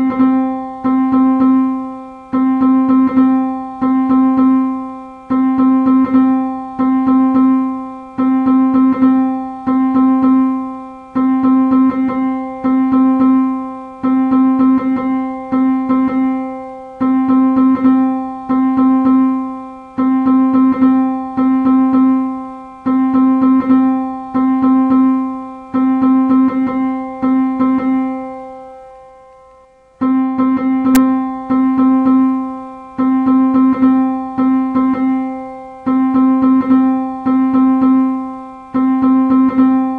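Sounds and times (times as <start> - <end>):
repeated piano-like note: 30.0 - 39.9.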